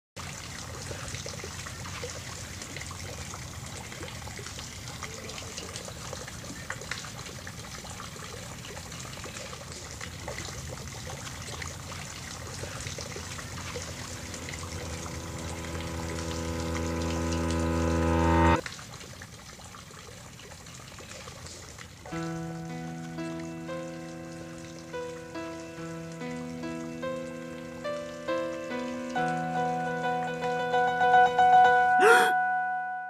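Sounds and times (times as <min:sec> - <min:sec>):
water lapping at shore: 0:00.2 - 0:15.0
low steady rumble: 0:13.1 - 0:18.6
drone of held tones: 0:13.2 - 0:18.6.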